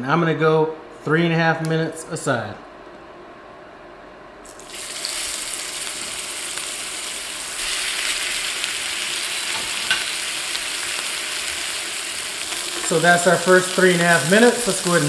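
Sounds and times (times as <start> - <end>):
steaks sizzling in butter: 4.6 - 15.0.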